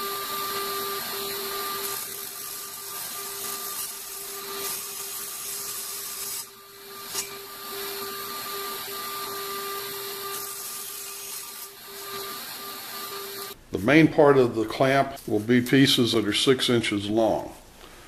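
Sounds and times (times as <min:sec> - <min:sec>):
table saw cutting plywood: 0:00.0 - 0:13.6.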